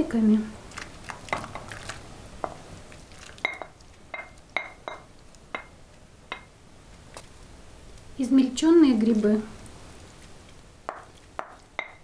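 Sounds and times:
spatula knocking on glass bowl: 10.9s - 12.0s.

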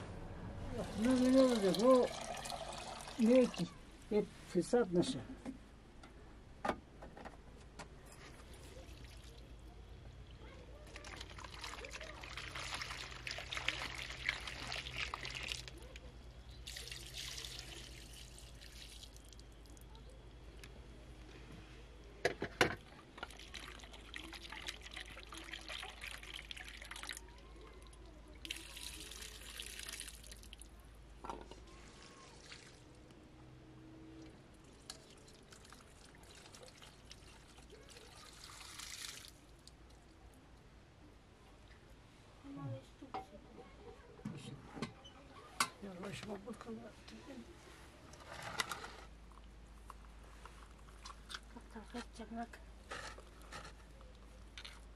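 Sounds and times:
water pouring into metal bowl: 0.8s - 3.7s, 10.8s - 15.8s, 16.6s - 19.4s, 23.2s - 27.3s, 28.4s - 30.6s, 34.6s - 39.4s.

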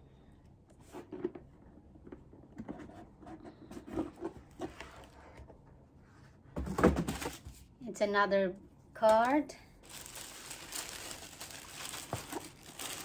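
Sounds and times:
paper packaging rustling: 9.1s - 13.0s.

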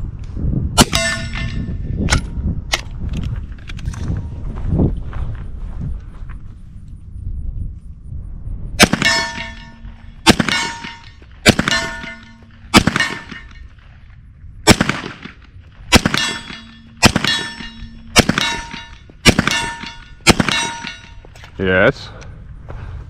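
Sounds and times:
metallic ring: 0.8s - 2.4s, 9.0s - 13.7s, 16.1s - 21.3s
pistol shots: 8.8s - 13.6s, 14.7s - 21.2s.

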